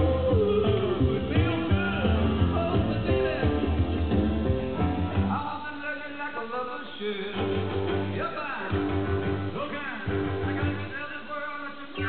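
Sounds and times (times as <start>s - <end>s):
rock music with guitar: 0.0s - 5.5s, 7.2s - 11.2s.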